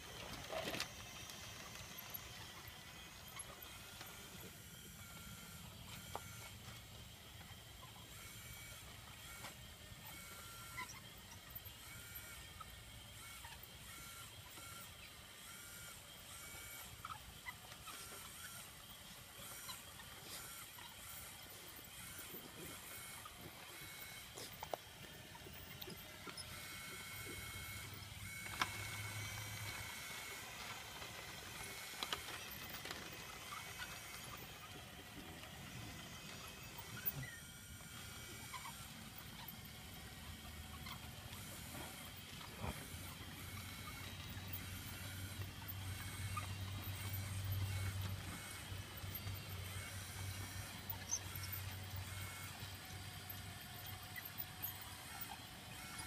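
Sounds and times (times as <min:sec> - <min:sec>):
model bulldozer motor whining: 0:00.0 - 0:56.0.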